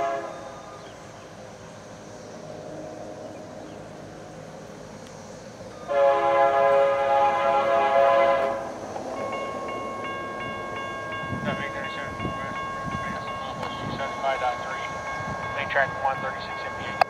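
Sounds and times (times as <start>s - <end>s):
locomotive air horn blast: 0.0s - 0.8s, 5.8s - 8.9s
steady high tones: 8.1s - 17.0s.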